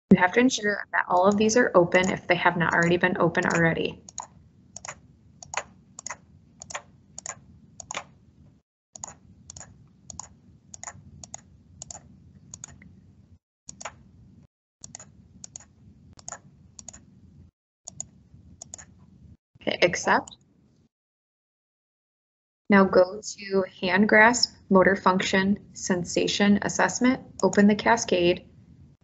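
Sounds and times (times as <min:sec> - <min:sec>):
computer mouse clicking: 0:02.0 - 0:08.1, 0:09.0 - 0:12.9, 0:13.7 - 0:14.0, 0:14.8 - 0:17.1, 0:17.9 - 0:19.0.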